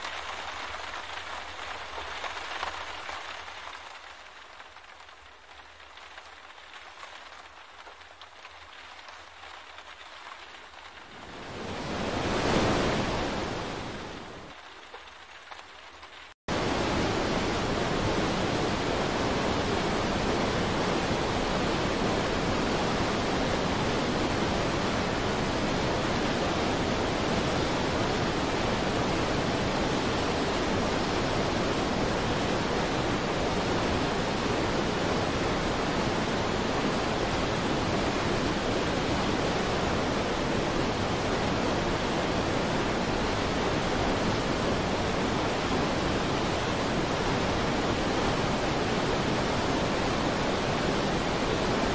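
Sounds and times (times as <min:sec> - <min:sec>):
floodwater rushing in a river: 0:00.0 - 0:51.9
rain-like hiss: 0:00.0 - 0:51.9.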